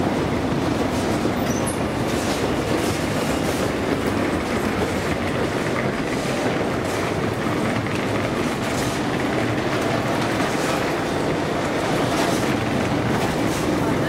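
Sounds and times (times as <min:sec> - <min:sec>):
escalator steps rattling: 0:00.9 - 0:13.9.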